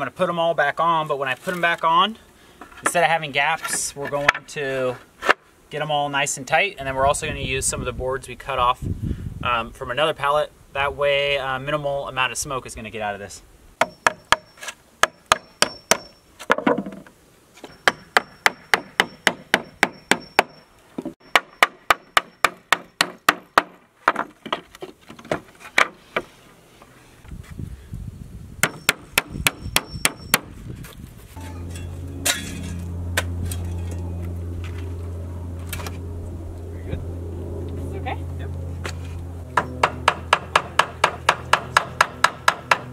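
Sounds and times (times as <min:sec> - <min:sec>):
hammer driving nails into wood: 0:21.3 - 0:26.0, 0:39.6 - 0:42.9
steady low hum: 0:26.5 - 0:42.9.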